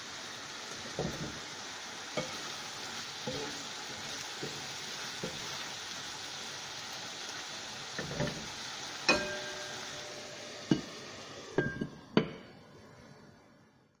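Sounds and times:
food sizzling in frying pan: 0:00.0 - 0:13.6
cookware clanking: 0:08.0 - 0:08.5, 0:09.1 - 0:11.0, 0:11.6 - 0:12.5.

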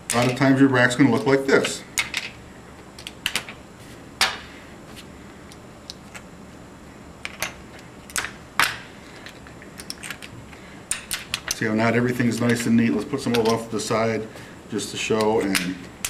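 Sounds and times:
casino chips clicking: 0:03.0 - 0:03.6, 0:09.8 - 0:10.3, 0:10.9 - 0:11.6.

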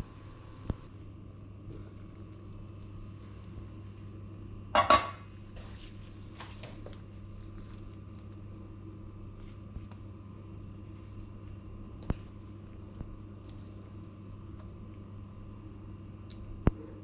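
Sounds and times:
metal pot lid clattering: 0:04.8 - 0:05.2.

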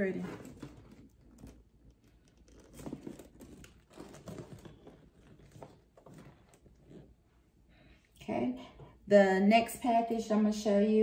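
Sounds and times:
handbag rustling and crinkling: 0:00.0 - 0:07.1.

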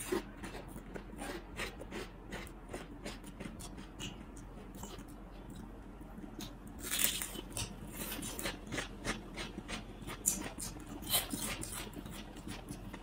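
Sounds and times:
crackers snapping and crunching: 0:06.4 - 0:12.2.

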